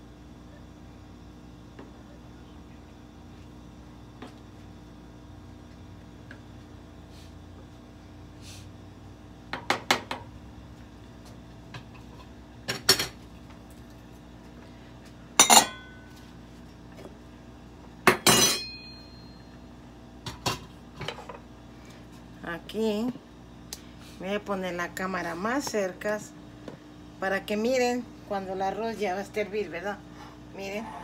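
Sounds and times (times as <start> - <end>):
kitchenware clinking and clattering: 15.4 - 15.9, 18.1 - 18.8.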